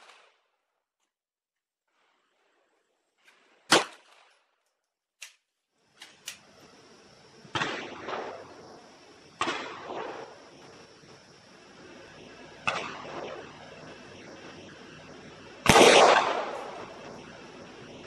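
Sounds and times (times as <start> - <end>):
pistol shots with echo: 15.6 - 17.0.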